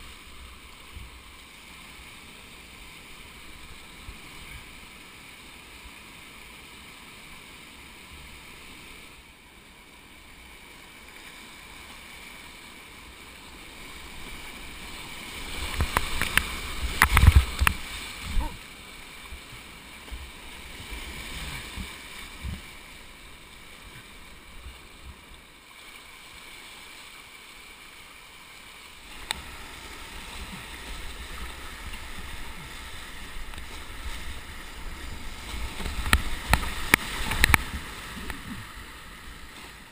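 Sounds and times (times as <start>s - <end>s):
whitewater rushing: 0.0s - 39.9s
paddle strokes in water: 13.7s - 39.9s
splashing and knocks: 15.7s - 17.8s.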